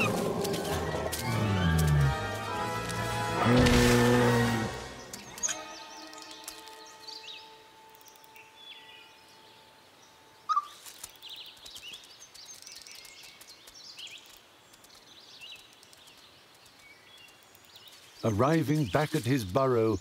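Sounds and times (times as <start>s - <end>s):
high bird chirps: 4.9s - 9.2s, 10.4s - 13.4s.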